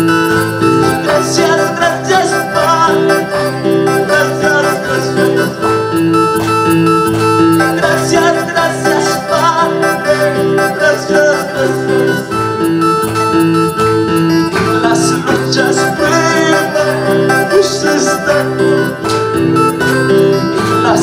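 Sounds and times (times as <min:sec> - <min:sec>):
guitar-like accompaniment: 0:00.0 - 0:21.0
worship music on electronic keyboard: 0:00.0 - 0:21.0
man singing into a microphone: 0:00.8 - 0:05.7, 0:07.6 - 0:12.5, 0:14.5 - 0:19.0, 0:20.4 - 0:21.0.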